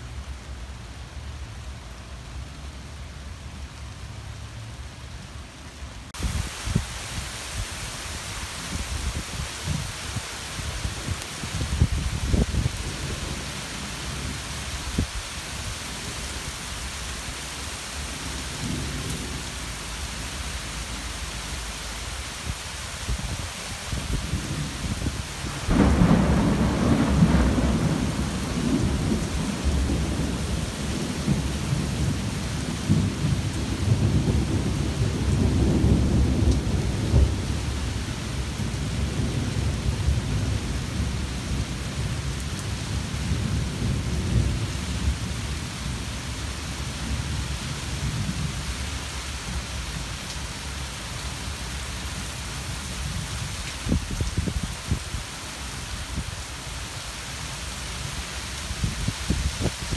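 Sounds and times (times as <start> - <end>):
steady rain: 0.0 - 59.9
rolling thunder: 23.1 - 38.0.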